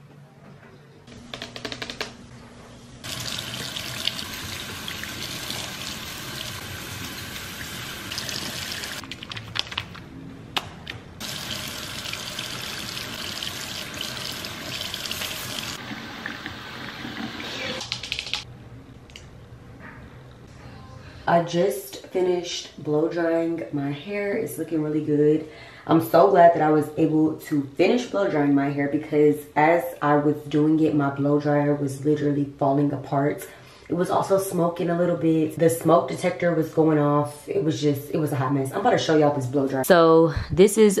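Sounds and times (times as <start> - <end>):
tap water running into sink: 3.1 - 9.0, 11.2 - 17.8.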